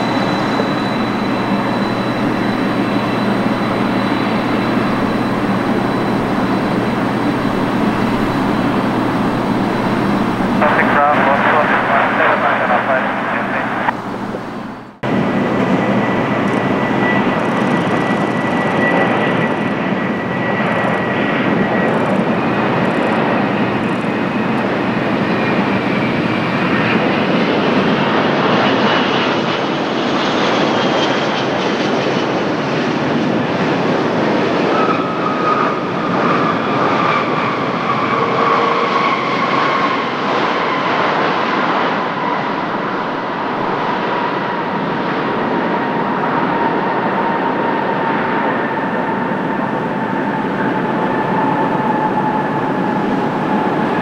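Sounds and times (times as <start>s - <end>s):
engine whine sliding down: 0.0s - 26.2s, 48.4s - 54.0s
jet engine roar: 0.0s - 54.0s.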